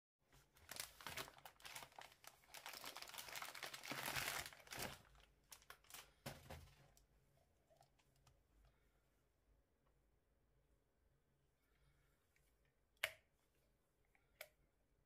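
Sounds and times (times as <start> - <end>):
plastic packaging crinkling: 0.6 - 7.0.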